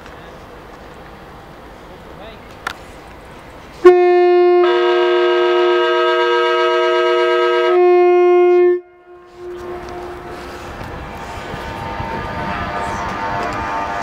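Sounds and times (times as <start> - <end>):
train running noise: 0.0 - 14.0
two-tone train air horn: 3.8 - 10.8, 11.8 - 14.0.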